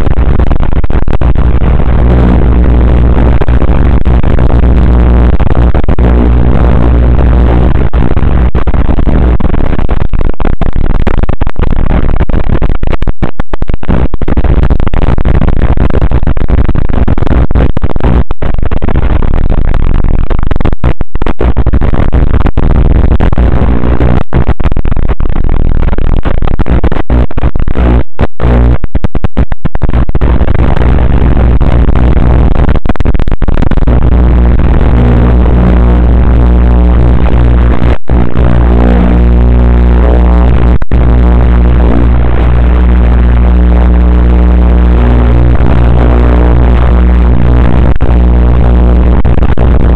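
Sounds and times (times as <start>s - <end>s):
static hiss: 0.0s - 49.9s
low electrical buzz: 33.8s - 49.9s.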